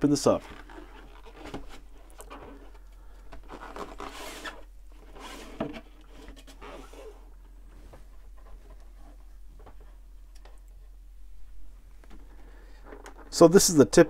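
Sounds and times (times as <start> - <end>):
cardboard sleeve scraping off box: 3.4 - 7.2.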